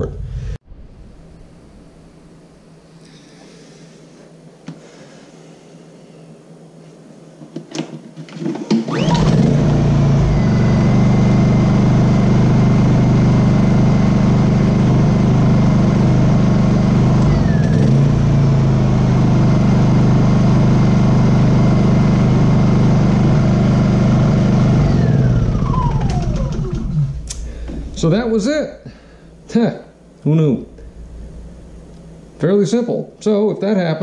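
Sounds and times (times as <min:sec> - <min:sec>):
generator recoil start: 0:08.5 - 0:29.4, 0:30.3 - 0:32.5
generator engine idling: 0:08.9 - 0:29.2.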